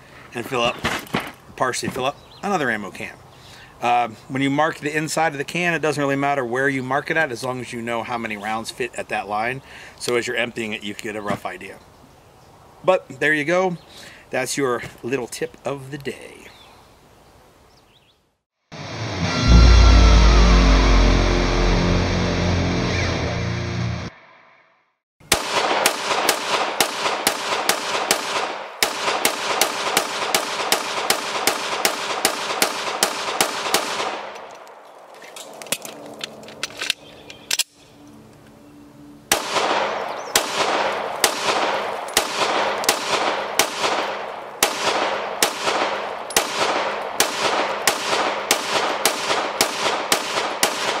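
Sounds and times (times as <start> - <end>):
rapid gunfire: 25.3 - 34.3, 39.3 - 51.0.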